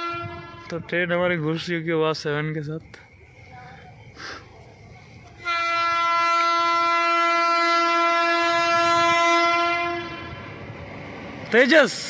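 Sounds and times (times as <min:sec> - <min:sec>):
locomotive horn blast: 0:00.0 - 0:00.9, 0:05.4 - 0:10.6.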